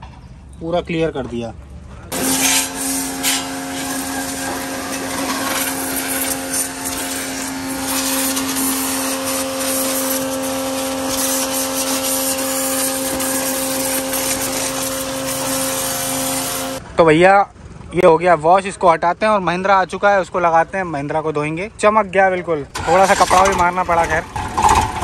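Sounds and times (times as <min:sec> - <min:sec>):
high-pressure water jet hissing: 0:02.1 - 0:16.8
pressure washer motor humming: 0:02.1 - 0:16.8.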